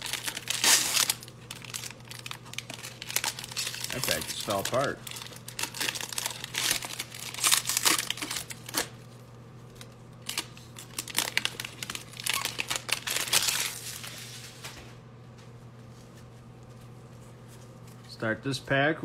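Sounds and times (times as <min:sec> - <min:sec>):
foil wrapper crinkling and tearing: 0:00.0 - 0:14.6.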